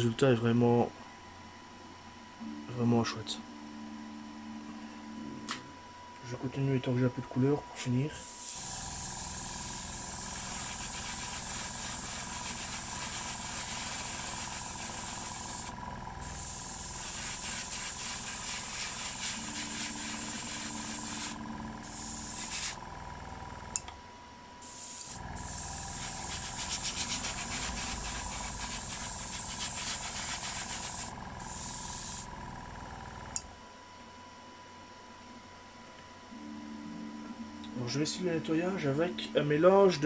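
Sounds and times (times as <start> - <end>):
compressor humming: 3.4 - 33.7
airbrush spraying hiss: 8.2 - 22.8, 24.6 - 32.3
click: 23.7 - 24.0.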